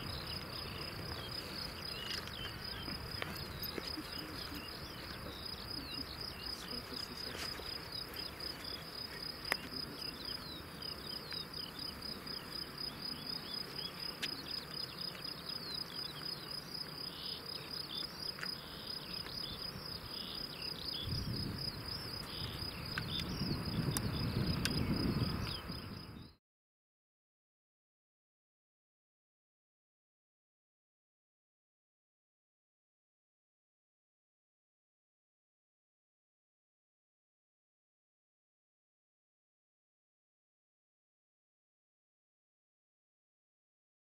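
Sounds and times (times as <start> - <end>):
crickets chirping: 0.0 - 26.4.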